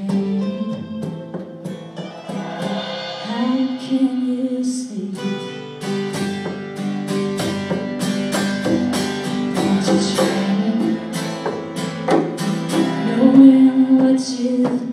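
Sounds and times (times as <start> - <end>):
woman singing: 0.0 - 1.6, 3.0 - 5.6, 9.6 - 11.4, 12.8 - 14.9
electric guitar: 0.0 - 14.9
strummed acoustic guitar: 0.0 - 14.9.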